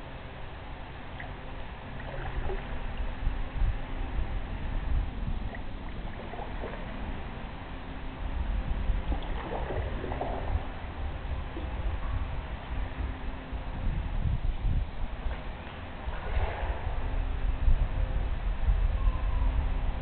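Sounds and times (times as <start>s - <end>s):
steady low rumble: 0.0s - 20.0s
canoe paddle splashing in water: 9.1s - 10.7s.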